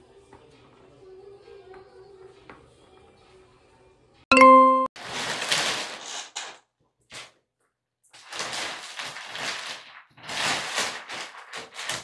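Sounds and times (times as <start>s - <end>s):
plastic bag rustling: 5.0s - 6.5s, 8.2s - 12.0s.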